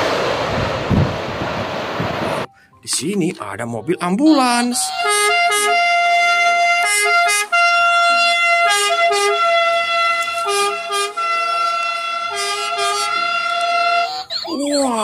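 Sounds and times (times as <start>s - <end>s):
ambulance siren: 3.7s - 15.0s.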